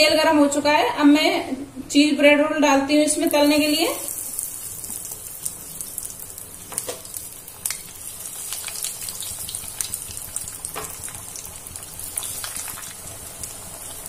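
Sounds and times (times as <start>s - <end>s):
food deep-frying in oil: 3.1s - 14.0s
oil popping and crackling: 3.2s - 14.0s.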